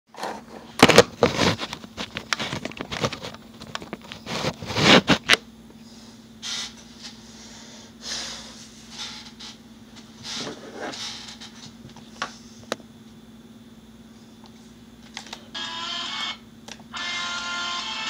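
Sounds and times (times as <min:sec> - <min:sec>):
steady low hum: 0:00.1 - 0:18.0.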